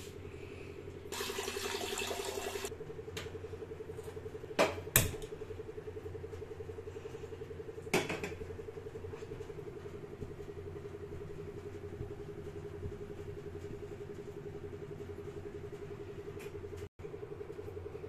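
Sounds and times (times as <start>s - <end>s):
water hissing into saucepan: 1.1s - 2.7s
steady low hum: 2.4s - 18.0s.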